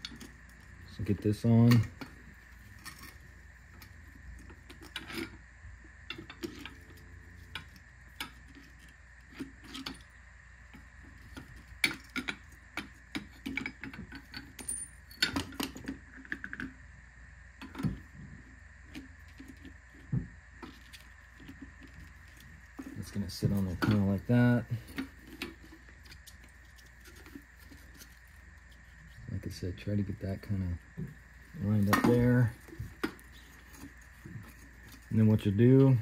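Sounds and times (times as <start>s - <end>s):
light metal clinks and knocks: 11.3s - 16.5s.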